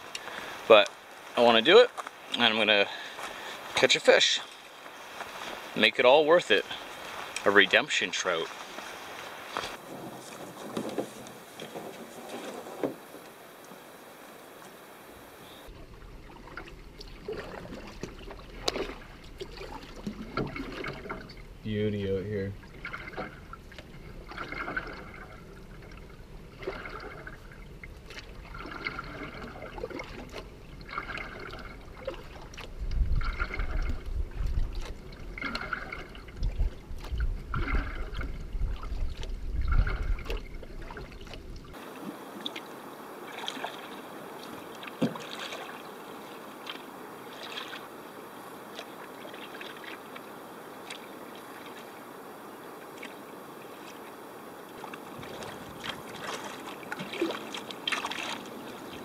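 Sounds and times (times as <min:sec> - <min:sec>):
water drips: 0:00.0 - 0:01.4, 0:15.7 - 0:21.7, 0:22.5 - 0:47.9
paddle strokes splashing water: 0:00.0 - 0:59.0
water lapping: 0:00.0 - 0:59.0.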